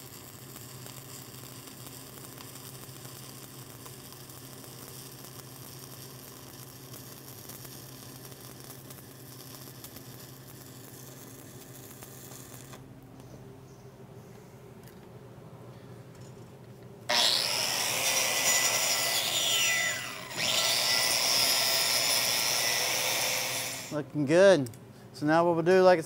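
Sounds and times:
welding arc crackling: 0.0 - 12.9, 17.1 - 24.0.

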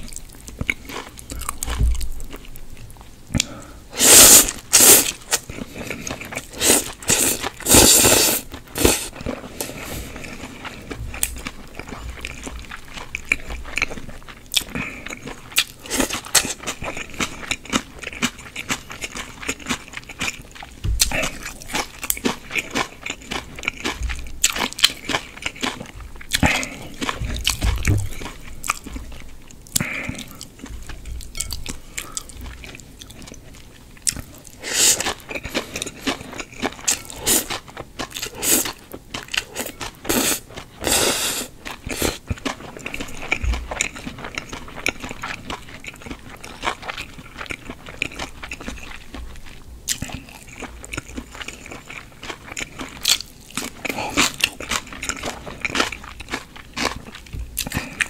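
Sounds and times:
wet chewing and mouth clicks: 0.0 - 58.0
slurping noodles: 3.9 - 10.7, 34.6 - 35.2, 39.6 - 42.2.

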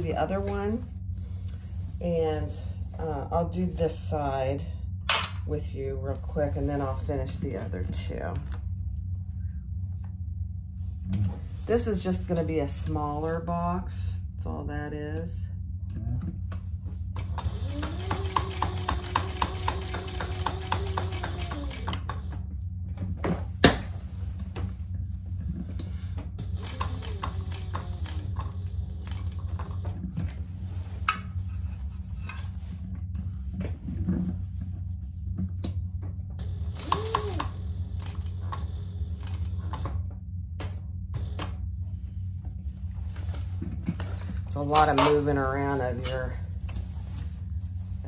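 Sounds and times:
steady low hum: 0.0 - 48.0
sewing machine stitching: 17.2 - 22.3, 26.4 - 29.5, 36.6 - 39.8.

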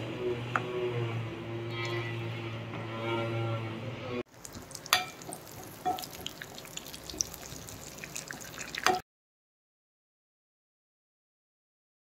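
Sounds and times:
food sizzling in a pan: 4.3 - 9.0.

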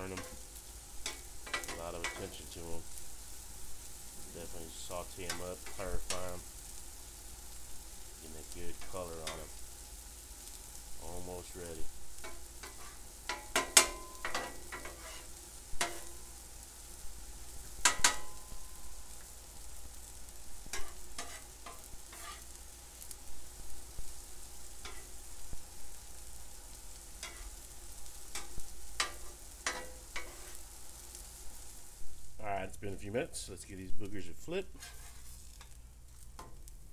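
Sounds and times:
onions sizzling on a griddle: 0.0 - 36.9
metal spatula scraping and tapping: 1.0 - 2.4, 12.2 - 16.1, 17.8 - 18.4, 20.7 - 22.6, 24.8 - 25.1, 27.2 - 27.5, 28.3 - 30.6, 34.7 - 35.8.

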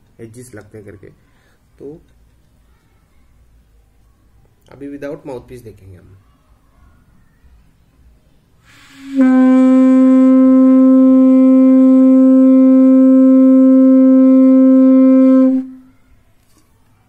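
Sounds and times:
conch shell long note: 8.7 - 15.9.

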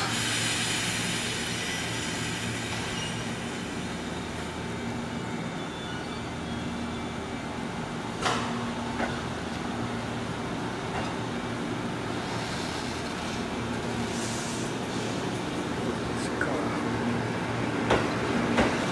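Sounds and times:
electric train motors rumbling: 6.2 - 18.9.

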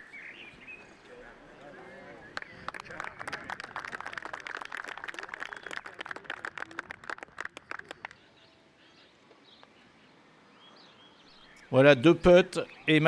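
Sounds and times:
scattered applause: 2.1 - 8.4.

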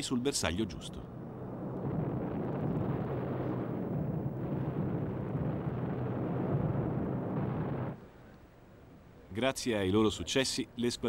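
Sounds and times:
low rumble of bombing: 1.1 - 8.0.

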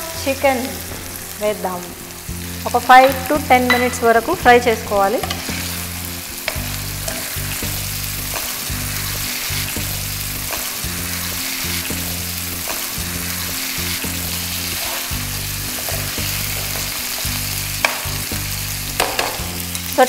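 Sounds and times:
background music: 0.0 - 20.0
chicken sizzling in oil: 0.0 - 20.0
metal spoon scraping pan: 5.2 - 5.8, 6.4 - 7.4, 14.6 - 17.2.

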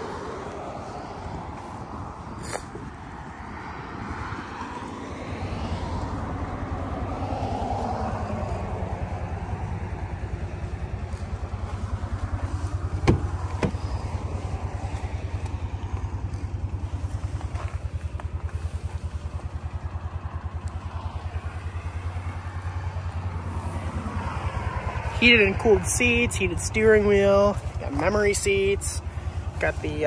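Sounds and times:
diesel engine idling: 0.0 - 30.0
car door latch clicks: 13.0 - 13.9.

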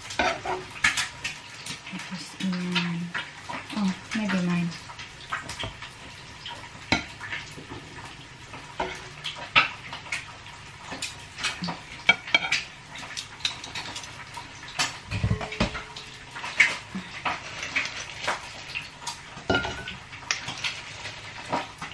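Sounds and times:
small clicks and crackles: 0.0 - 15.0, 15.8 - 21.9.

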